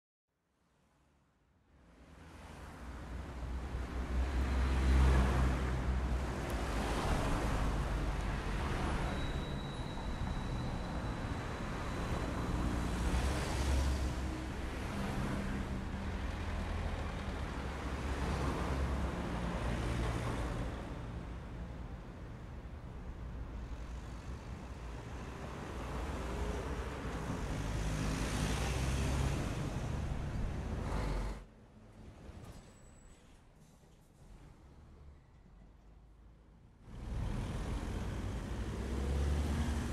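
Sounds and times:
road traffic rumble: 1.8s - 32.1s, 36.8s - 39.9s
cars passing: 2.0s - 31.5s, 36.8s - 39.9s
vehicle passing: 36.9s - 39.9s.

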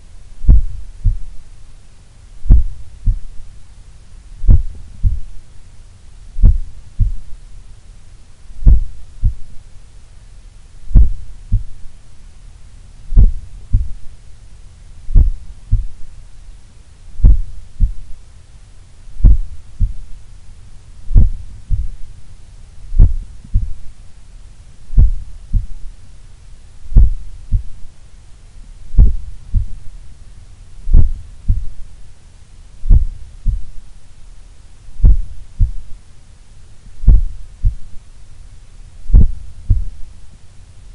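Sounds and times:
heart beating through stethoscope: 0.4s - 1.4s, 2.4s - 3.4s, 4.4s - 5.4s, 6.4s - 7.4s, 8.6s - 9.5s, 10.9s - 11.8s, 13.1s - 14.1s, 15.1s - 16.1s, 17.2s - 18.2s, 19.2s - 20.2s, 21.1s - 22.1s, 22.9s - 23.9s, 24.9s - 25.9s, 26.9s - 27.8s, 28.9s - 29.8s, 30.9s - 31.8s, 32.8s - 33.8s, 35.0s - 35.9s, 37.0s - 37.9s, 39.1s - 40.0s.

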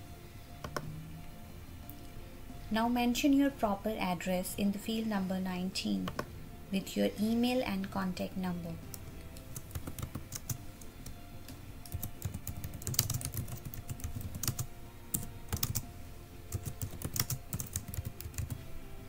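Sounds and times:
computer keyboard typing: 0.6s - 0.9s, 8.8s - 10.9s, 11.8s - 15.8s, 16.5s - 18.6s.

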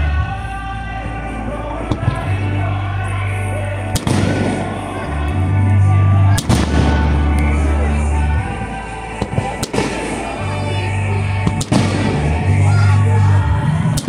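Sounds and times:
music with deep bass: 0.0s - 14.0s
fireworks bursting with bangs: 4.0s - 5.0s, 6.3s - 7.6s, 9.1s - 10.6s, 11.4s - 12.6s.

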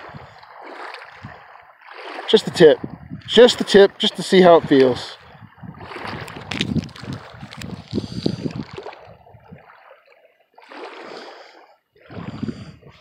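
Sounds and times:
small waves lapping: 0.0s - 13.0s
gusty wind on microphone: 1.1s - 1.5s, 2.5s - 3.6s, 4.6s - 9.8s, 12.0s - 13.0s.

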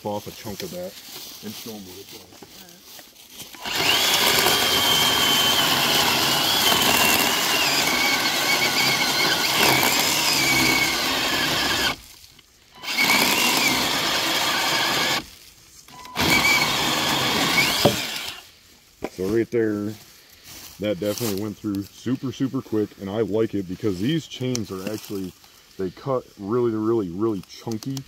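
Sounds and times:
chainsaw cutting a log: 3.6s - 12.0s, 12.8s - 15.3s, 16.0s - 18.4s.

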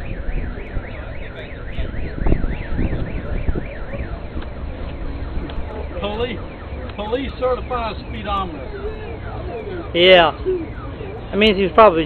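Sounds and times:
electronic siren wailing: 0.0s - 12.0s.

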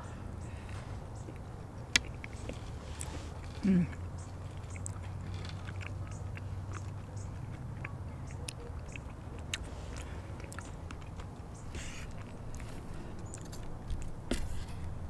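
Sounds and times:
close chewing with crisp crackles: 0.0s - 15.0s
steady low hum: 0.0s - 15.0s.

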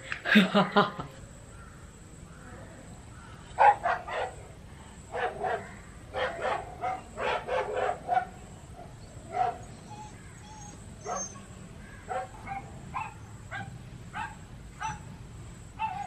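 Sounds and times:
dogs barking through phone speaker: 3.6s - 10.2s, 12.1s - 15.1s, 15.8s - 16.0s.

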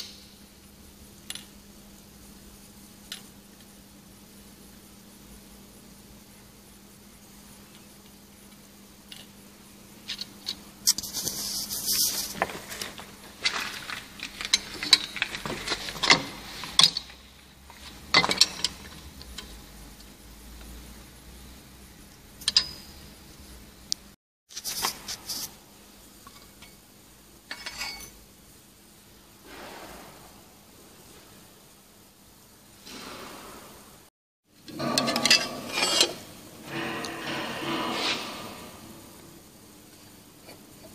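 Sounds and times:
metal clinking and scraping: 10.9s - 19.0s, 27.5s - 28.2s, 34.7s - 39.2s.

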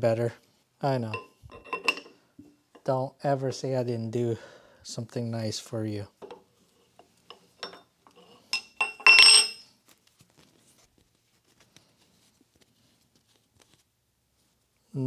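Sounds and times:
metal spanners clinking: 1.1s - 2.1s, 7.3s - 9.6s.

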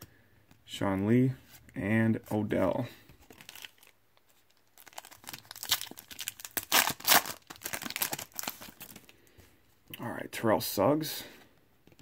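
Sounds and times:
foil wrapper crinkling and tearing: 3.3s - 9.1s.

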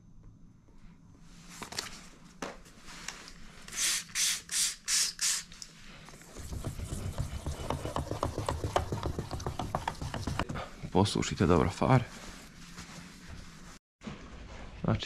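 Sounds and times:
spray bottle squirts: 3.7s - 10.4s
wet sandpaper rubbing plastic: 6.3s - 10.5s.

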